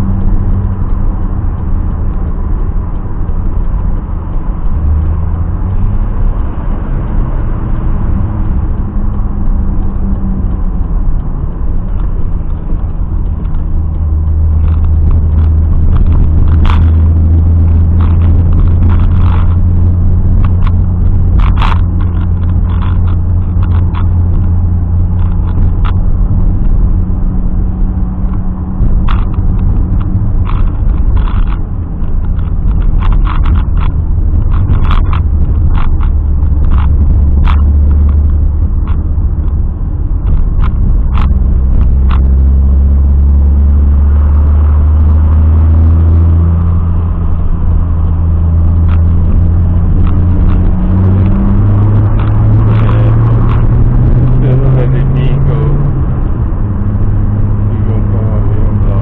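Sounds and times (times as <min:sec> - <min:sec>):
car engine running: 0:00.0 - 0:59.0
sharp clicks and knocks: 0:00.0 - 0:59.0.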